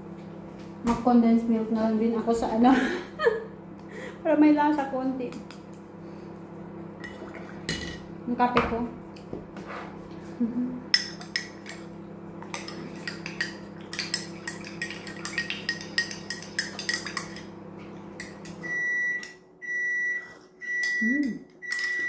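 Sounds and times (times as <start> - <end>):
microwave oven humming: 0.0 - 22.0
spoon clinking against a mug: 12.6 - 17.5
microwave beeps: 18.6 - 22.0.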